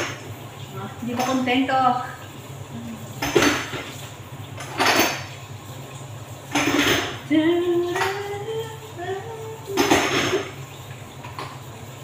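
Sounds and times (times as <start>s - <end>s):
woman humming: 2.7s - 3.1s
dishes and pots clattering: 3.2s - 4.0s, 4.6s - 5.4s, 6.5s - 8.4s, 9.7s - 10.6s.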